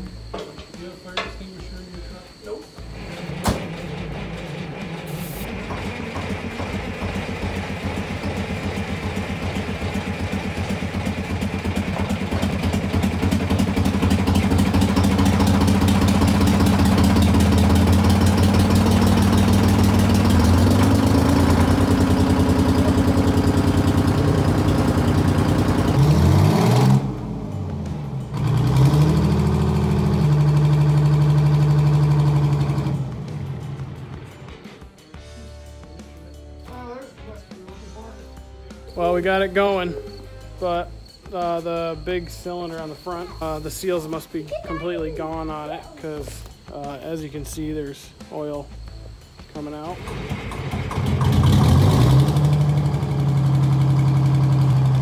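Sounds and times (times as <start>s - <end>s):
diesel engine running: 0.0s - 35.4s, 47.8s - 55.0s.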